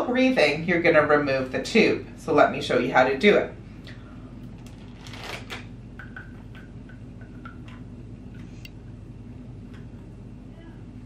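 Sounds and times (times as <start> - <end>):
low steady hum: 0.0 - 11.0
plastic bag crinkling and clicks: 4.6 - 5.7.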